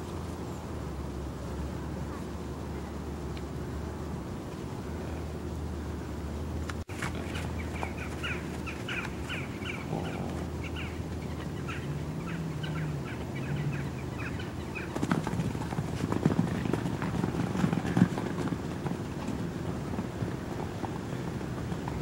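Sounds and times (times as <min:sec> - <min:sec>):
small birds chirping: 0:06.8 - 0:18.3
hooves thudding on sand: 0:06.8 - 0:22.0.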